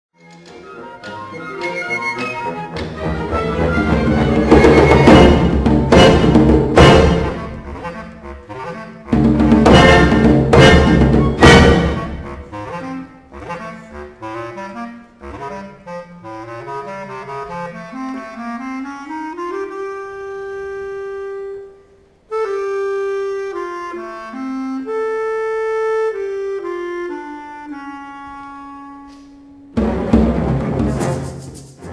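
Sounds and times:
orchestra playing loudly: 0.2 - 21.4, 28.4 - 31.9
bass clarinet melody: 0.2 - 29.8
orchestral hit: 2.8 - 7.8, 9.2 - 12.5, 29.7 - 31.9.

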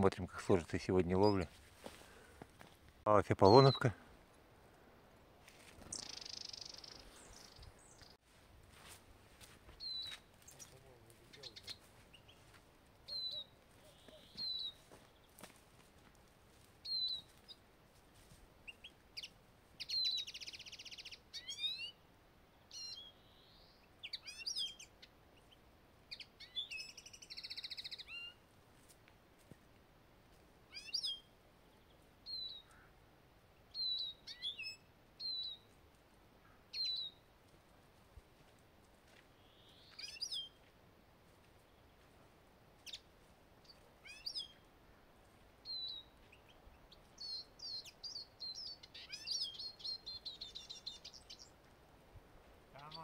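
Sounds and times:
finches chirping: 5.8 - 8.2, 13.1 - 14.8, 45.6 - 51.6.

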